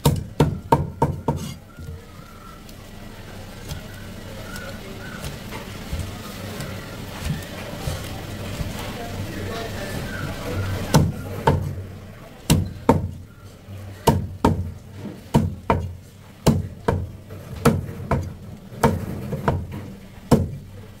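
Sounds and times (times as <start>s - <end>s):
cleaver chopping fish on wood: 0.0s - 2.0s, 10.9s - 11.8s, 12.5s - 13.2s, 14.0s - 19.7s, 20.3s - 20.6s.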